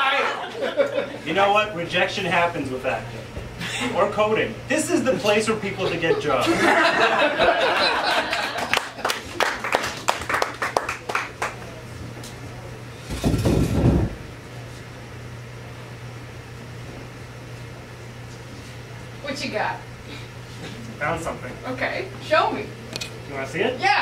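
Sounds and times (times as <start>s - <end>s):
steady low hum: 0.0s - 24.0s
audience clapping: 8.0s - 11.8s.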